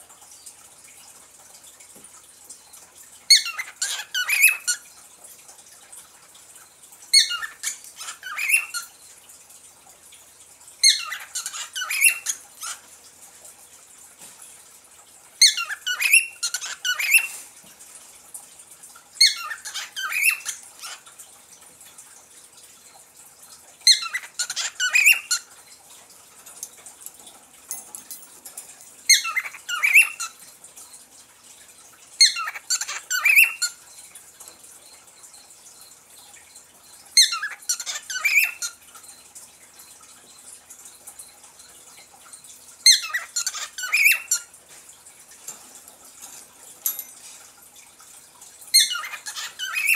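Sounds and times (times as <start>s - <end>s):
cockatiel chirping: 42.9s - 44.4s.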